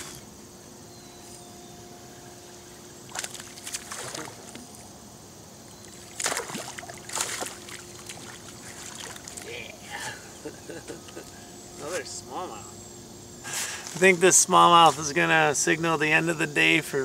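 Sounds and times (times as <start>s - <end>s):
fish splashing at water surface: 3.1s - 4.6s, 5.9s - 9.5s.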